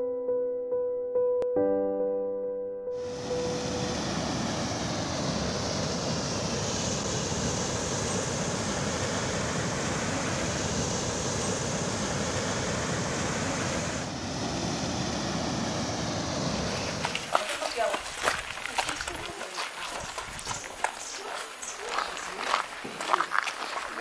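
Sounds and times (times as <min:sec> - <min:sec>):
wind buffeting microphone: 0:03.9 - 0:24.0
river water flowing: 0:15.2 - 0:24.0.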